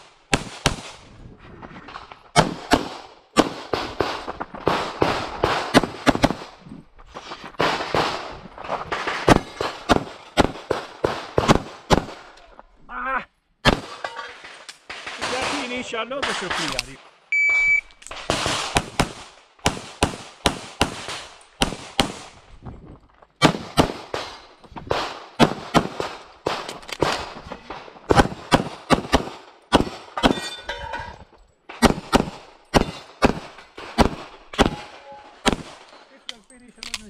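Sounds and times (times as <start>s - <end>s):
pistol firing fast shots: 2.4s - 6.5s, 18.3s - 22.3s, 23.4s - 27.2s, 28.1s - 30.4s, 31.8s - 35.8s.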